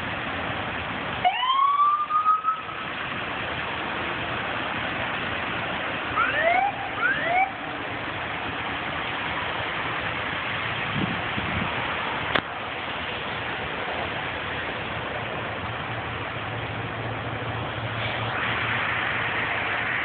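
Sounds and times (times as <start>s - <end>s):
idling and passing vehicles: 0.0s - 20.0s
siren whoops: 1.2s - 2.7s, 6.2s - 7.6s.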